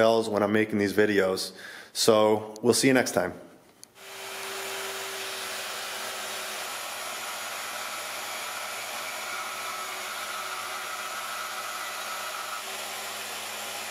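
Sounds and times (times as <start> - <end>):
bandsaw cutting steel: 4.0 - 13.9.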